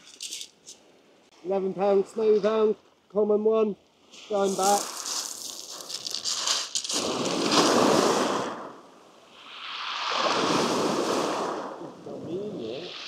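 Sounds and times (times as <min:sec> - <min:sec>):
pebbles crackling: 0:00.0 - 0:00.7, 0:04.2 - 0:07.8
waves breaking on shingle: 0:04.1 - 0:11.8.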